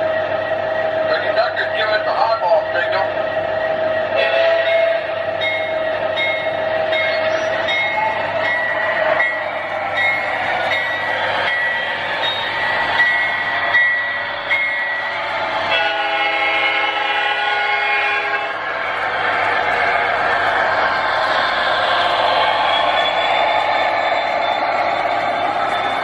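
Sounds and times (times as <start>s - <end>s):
train chord horn blowing: 4.2s - 5.0s, 15.8s - 18.6s
train bell ringing: 4.2s - 18.4s, 22.6s - 26.0s.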